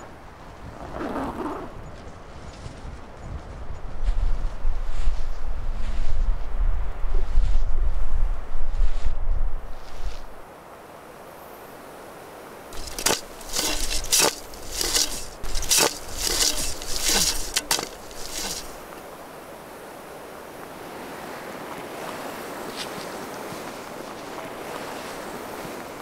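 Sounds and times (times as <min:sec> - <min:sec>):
faint wind hiss: 0:00.0 - 0:26.0
branches rustling and cracking: 0:12.8 - 0:19.2.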